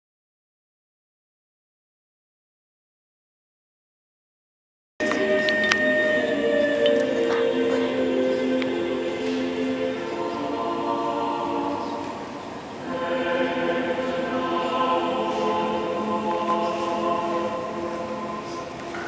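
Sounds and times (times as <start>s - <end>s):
choir singing long held notes: 5.0s - 19.0s.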